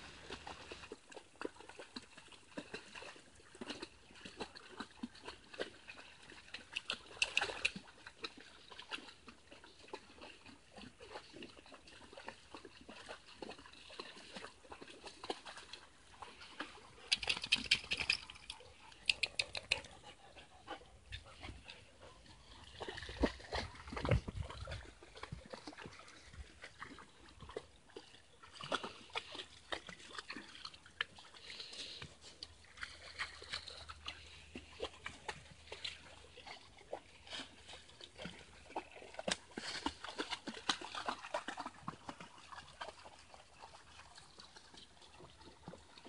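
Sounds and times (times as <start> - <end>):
dogs splashing: 0.0 - 46.0
water trickling: 11.9 - 46.0.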